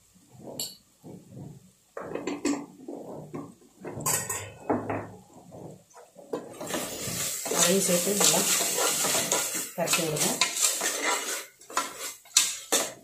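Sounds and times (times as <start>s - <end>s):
metal utensils clinking on pot: 3.3s - 5.1s, 6.4s - 13.0s.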